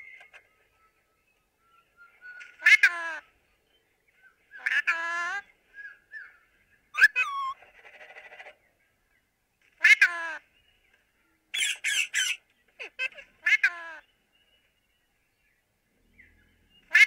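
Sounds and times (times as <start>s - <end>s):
parakeets calling: 7.0s - 7.6s, 11.6s - 14.1s.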